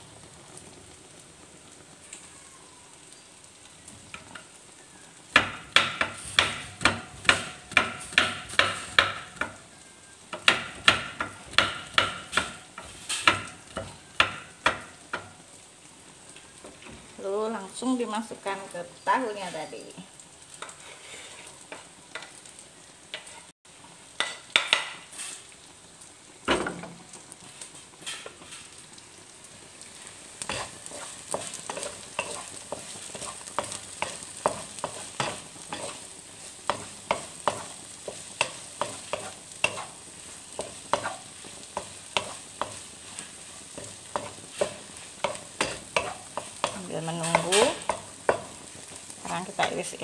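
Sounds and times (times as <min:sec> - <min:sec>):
food sizzling in a wok: 0:00.0 - 0:50.0
spatula scraping and tapping pan: 0:05.4 - 0:09.6, 0:10.3 - 0:15.4, 0:20.5 - 0:23.5, 0:24.2 - 0:25.5, 0:26.7 - 0:28.8, 0:30.4 - 0:50.0.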